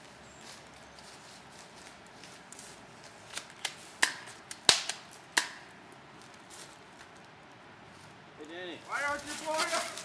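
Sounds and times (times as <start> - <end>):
sharp cracks or pops: 3.3 - 5.7.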